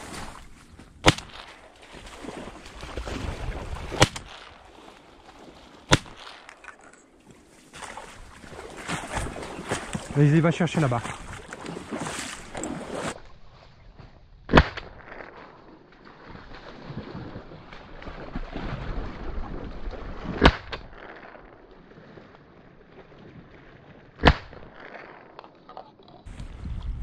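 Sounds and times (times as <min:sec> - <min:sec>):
faint wind: 0:00.0 - 0:27.0
shotgun shots: 0:01.0 - 0:01.7, 0:04.0 - 0:04.6, 0:05.9 - 0:06.5, 0:24.2 - 0:25.1.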